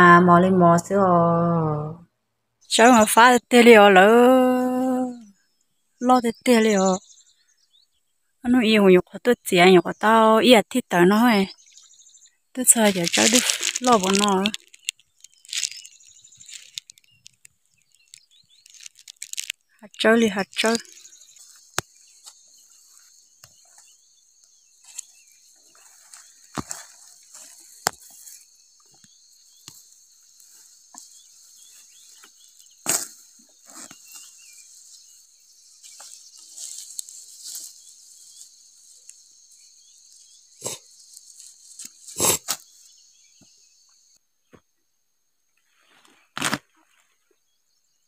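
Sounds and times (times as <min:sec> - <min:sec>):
insects buzzing: 0:08.6 - 0:45.9
weeds rustling as pulled: 0:12.6 - 0:24.0, 0:24.8 - 0:28.6, 0:29.5 - 0:42.9
stems snapping: 0:12.7 - 0:19.6, 0:32.8 - 0:33.2.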